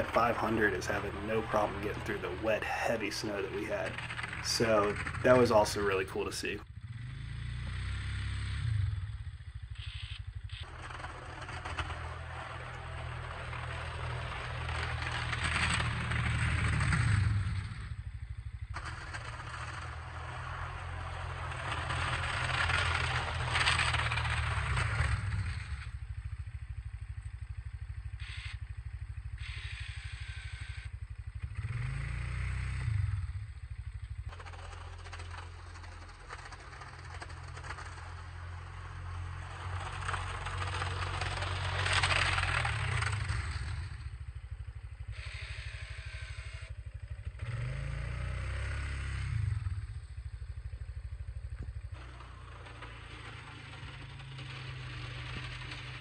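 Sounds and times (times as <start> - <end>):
steel plow blade scraping pavement: 0.0 - 6.6, 9.8 - 17.8, 18.6 - 25.9, 34.1 - 44.3, 51.9 - 56.0
atv engine running: 0.0 - 56.0.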